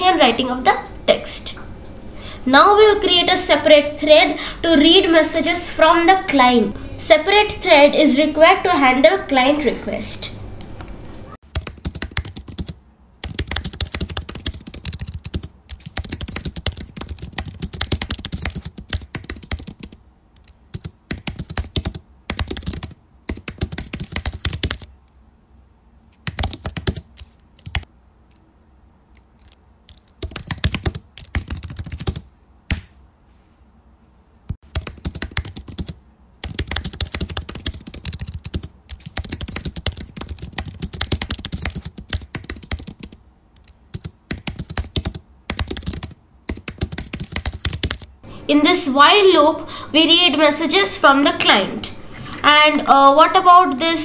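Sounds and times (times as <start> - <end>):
typing on keyboard: 11.5 - 24.9, 26.1 - 28.4, 29.1 - 32.9, 34.7 - 48.1.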